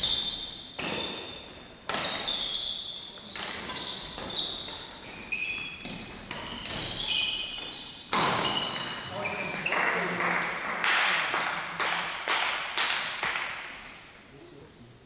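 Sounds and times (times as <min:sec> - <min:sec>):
racket striking shuttlecock: 0:00.0 - 0:09.7
shoes squeaking on court floor: 0:00.0 - 0:10.1, 0:13.4 - 0:14.4.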